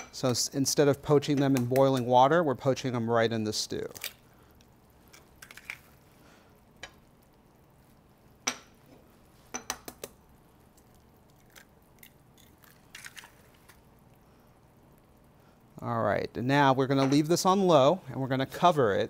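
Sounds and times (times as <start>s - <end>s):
eggs tapping on ceramic: 9.5s - 10.2s.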